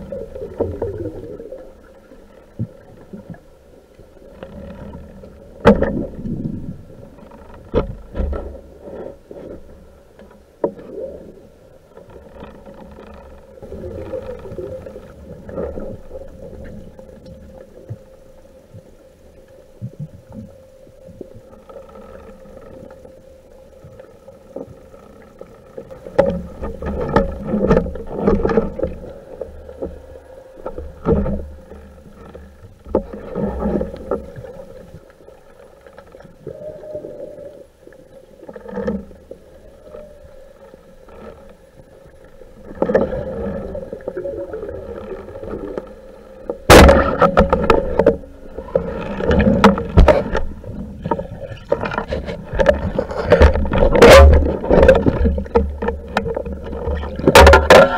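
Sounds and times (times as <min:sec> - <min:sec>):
muffled underwater noise: 0:00.0 - 0:57.9
sharp crack: 0:46.7 - 0:47.6.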